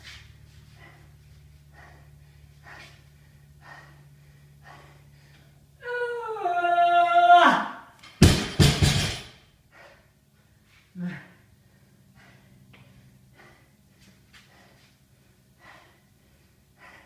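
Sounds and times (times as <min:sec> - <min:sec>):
person breathing hard: 0:00.1 - 0:05.8, 0:09.5 - 0:17.0
person yelling strained: 0:05.8 - 0:07.8
barbell banging on floor: 0:08.0 - 0:09.4.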